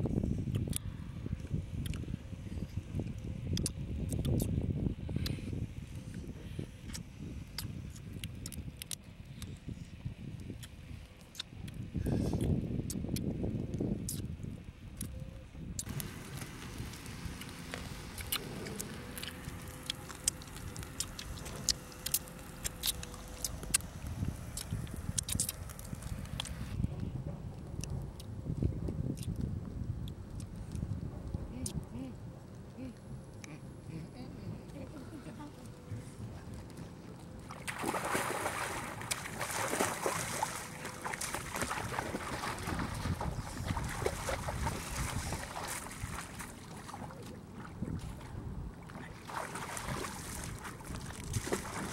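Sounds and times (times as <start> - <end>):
small sharp clicks and crackles: 15.8 - 26.6
splashing while wading: 37.3 - 51.9
person jumping into water: 37.4 - 51.9.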